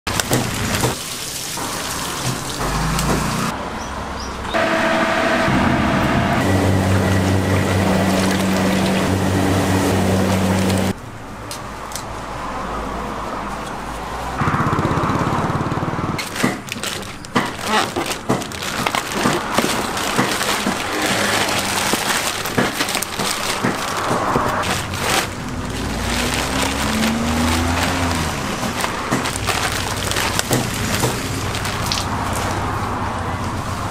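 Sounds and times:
low hum: 4.6s - 10.9s
plastic bags crinkling: 16.2s - 32.6s.

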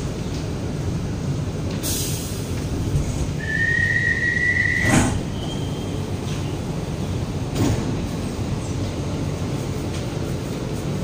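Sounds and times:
doors releasing clunk: 4.8s - 5.5s.

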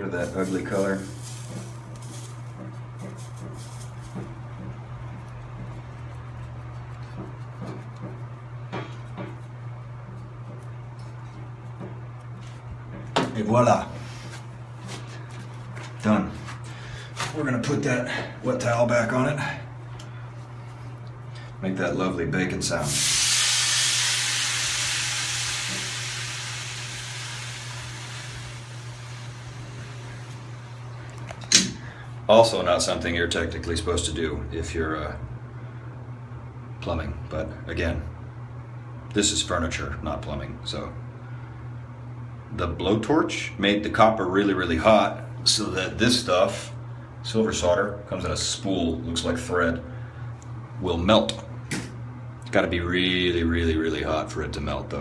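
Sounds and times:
blowtorch flame burning: 0.0s - 4.2s, 22.9s - 30.9s
hot pipe sizzling and hissing: 0.0s - 4.2s, 22.8s - 30.8s.

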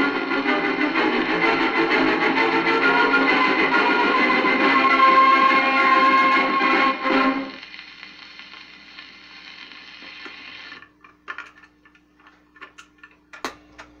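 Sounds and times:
record closing chord: 0.0s - 10.8s
record surface hiss: 0.0s - 14.0s.

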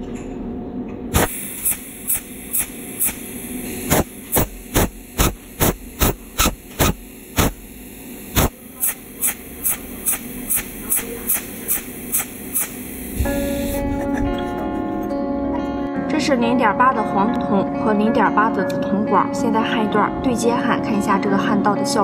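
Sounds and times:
steady electrical hum: 0.0s - 15.9s
welding machine clicking: 1.1s - 13.8s.

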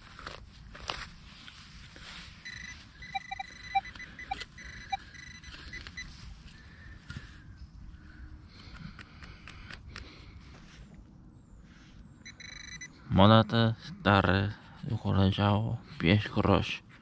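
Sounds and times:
metal detector pulsing buzz: 2.4s - 6.1s, 12.2s - 12.9s
metal detector short beeps: 2.4s - 6.1s, 12.2s - 12.9s.

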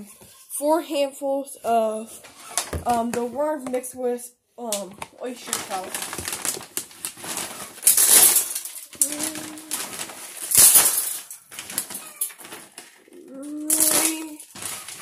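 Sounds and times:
plastic bag crinkling: 5.2s - 15.0s
dried feed rattling into tub: 7.4s - 12.8s.

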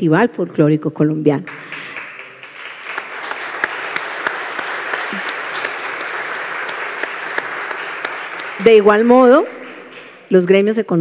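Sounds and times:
audience applauding: 1.5s - 10.4s.

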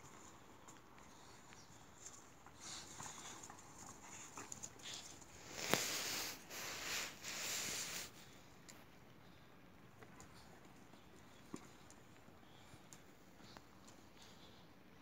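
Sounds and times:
breathy rustling bursts: 4.8s - 8.5s.

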